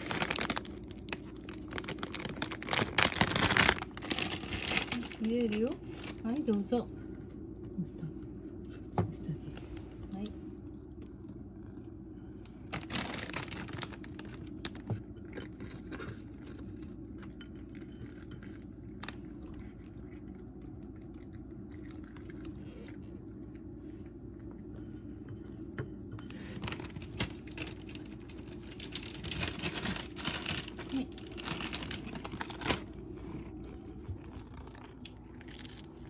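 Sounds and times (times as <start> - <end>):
cat crunching dry food: 0.0 - 7.6, 11.0 - 23.8, 26.3 - 36.0
low background hum: 0.0 - 36.0.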